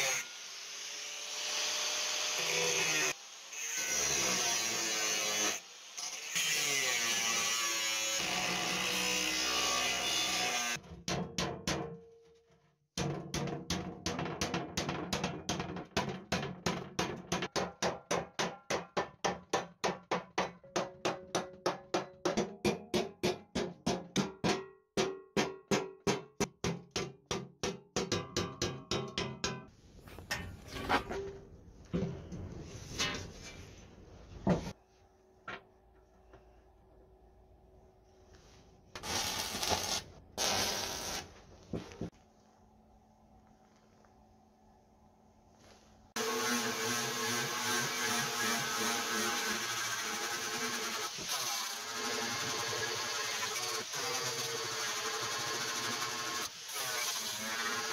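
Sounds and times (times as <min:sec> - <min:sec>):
angle grinder cutting sheet metal: 0:00.0 - 0:10.8, 0:46.2 - 0:57.9
hammer striking sheet metal: 0:11.0 - 0:12.1, 0:13.0 - 0:31.4.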